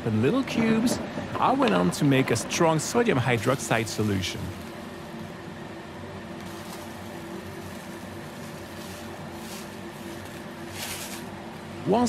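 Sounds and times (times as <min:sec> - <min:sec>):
low hum and hiss: 0:00.0 - 0:12.0.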